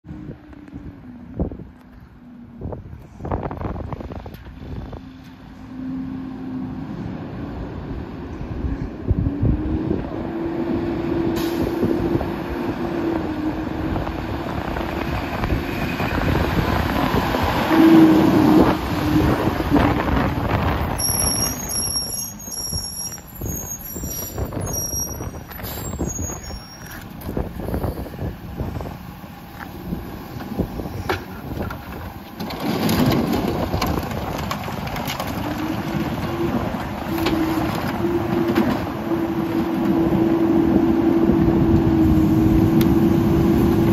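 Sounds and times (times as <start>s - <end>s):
garbage truck engine rumbling: 0.1s - 43.9s
recyclables clattering into truck: 31.1s - 38.9s.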